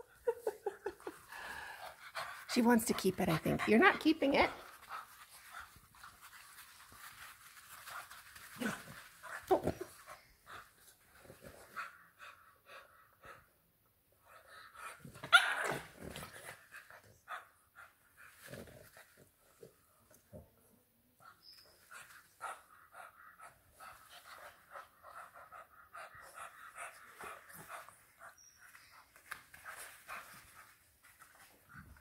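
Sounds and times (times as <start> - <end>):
puppies breathing and snuffling: 0.7 - 15.2, 21.3 - 32.0.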